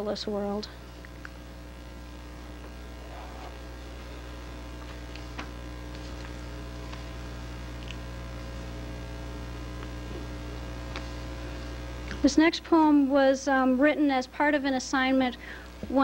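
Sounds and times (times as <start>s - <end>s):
electrical mains hum: 0.0s - 16.0s
paper rustling: 4.8s - 7.1s.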